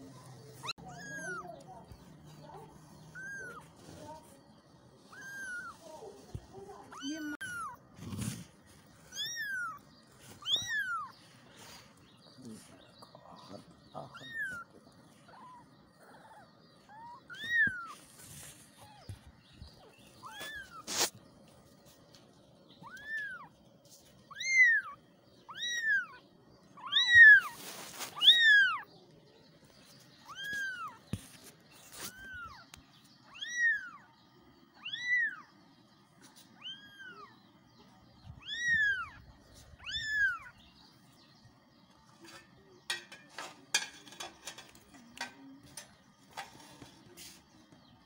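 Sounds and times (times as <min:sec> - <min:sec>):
soft rustling: 0:00.0 - 0:13.5, 0:14.3 - 0:24.4, 0:27.0 - 0:33.2, 0:44.4 - 0:48.0
kittens meowing: 0:00.6 - 0:01.7, 0:03.1 - 0:03.8, 0:05.0 - 0:05.8, 0:06.8 - 0:07.8, 0:09.0 - 0:11.2, 0:13.7 - 0:18.1, 0:18.8 - 0:21.1, 0:22.8 - 0:23.5, 0:24.3 - 0:28.9, 0:30.2 - 0:31.0, 0:32.1 - 0:34.2, 0:34.8 - 0:35.6, 0:36.4 - 0:37.4, 0:38.2 - 0:40.6.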